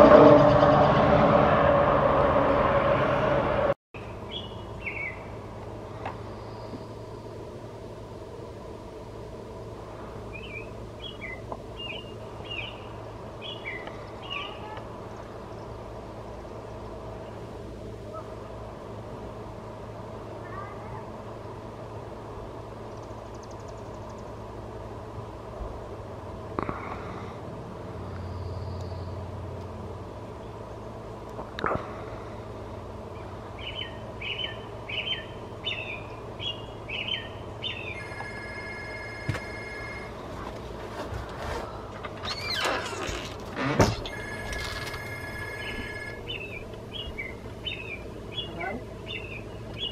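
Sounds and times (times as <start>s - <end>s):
steady low hum: 0.0s - 49.9s
bird chirping: 4.0s - 5.3s, 10.3s - 15.7s, 33.2s - 38.2s, 45.3s - 49.9s.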